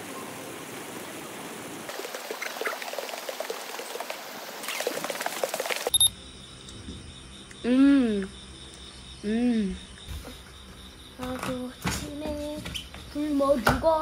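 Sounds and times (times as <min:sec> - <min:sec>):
pool water splashing and sloshing: 0:00.0 - 0:06.0.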